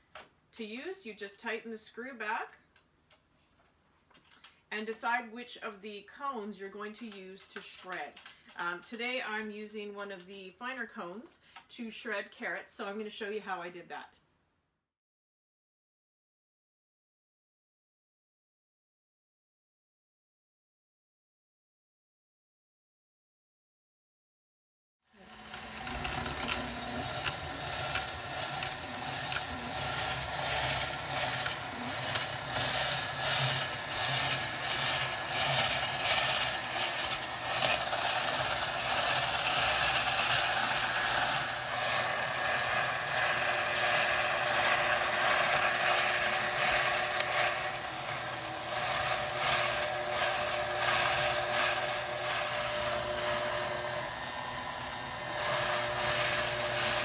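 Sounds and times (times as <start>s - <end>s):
mixer motor hum: 25.1s - 57.0s
carrots rasping on grater: 25.2s - 57.0s.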